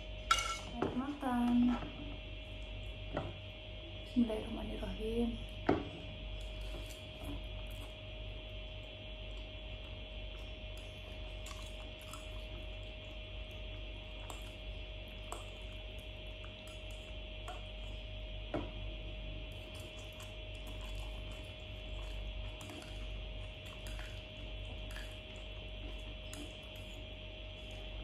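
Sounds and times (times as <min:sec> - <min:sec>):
electrical hum: 0:00.0 - 0:28.0
chewing and slurping noodles: 0:19.4 - 0:28.0.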